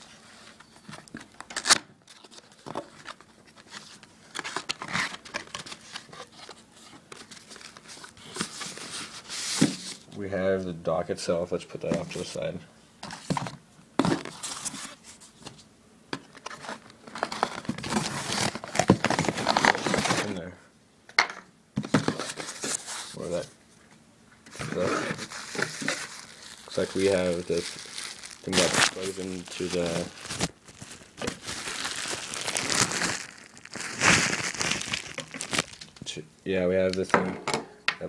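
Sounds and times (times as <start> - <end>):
packaging rustling and crinkling: 0.0 - 10.0, 16.3 - 20.4, 21.8 - 23.5, 24.5 - 36.2
crackling: 24.4 - 36.2
plastic bag crinkling: 24.5 - 36.1.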